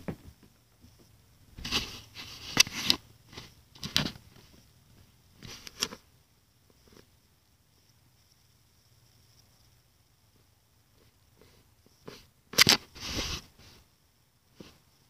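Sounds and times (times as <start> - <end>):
rustling and knocking handling noise: 0.0 - 6.0.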